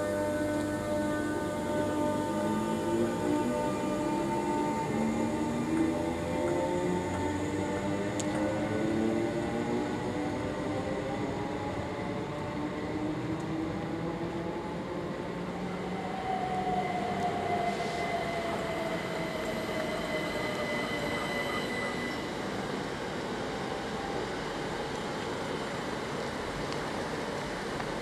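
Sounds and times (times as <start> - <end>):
train motor whine: 0.0 - 12.1
train running rumble: 0.0 - 15.7.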